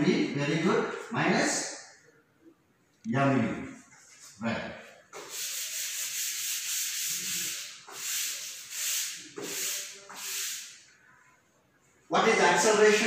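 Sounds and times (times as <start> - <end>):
duster scrubbing chalkboard: 5.1 - 10.8.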